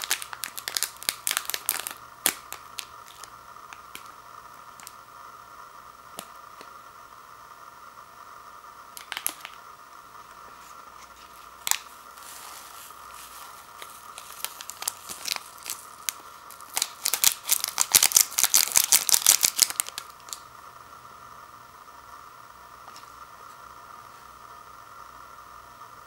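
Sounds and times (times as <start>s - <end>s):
foil sachet crinkling: 0.0s - 4.2s, 9.0s - 9.6s, 10.6s - 20.4s
loud foil crackle: 0.0s - 5.0s, 9.0s - 9.6s, 10.6s - 20.5s.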